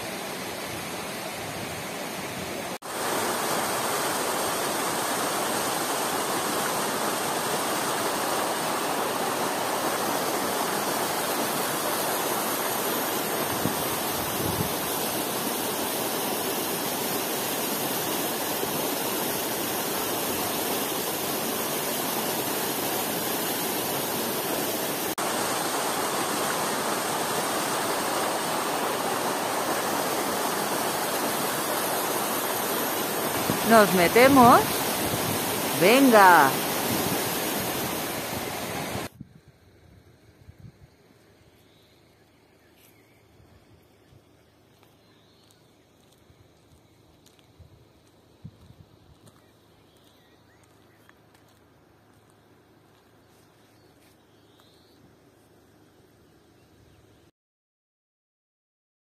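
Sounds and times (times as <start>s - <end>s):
stream cascading over rocks: 0.0s - 39.1s
waterfall rushing: 0.0s - 39.1s.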